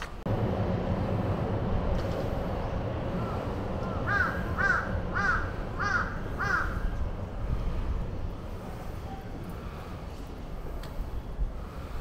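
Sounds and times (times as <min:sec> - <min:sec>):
low background rumble: 0:00.0 - 0:12.0
crow cawing: 0:03.9 - 0:06.9.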